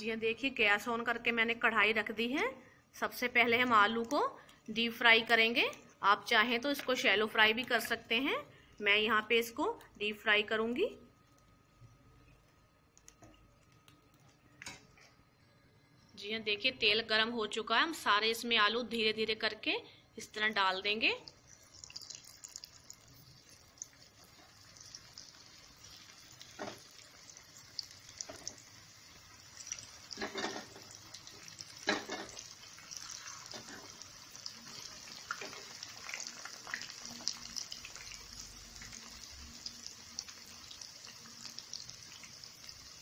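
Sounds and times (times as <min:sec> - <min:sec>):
potatoes sizzling in hot oil: 0:21.0 - 0:43.0.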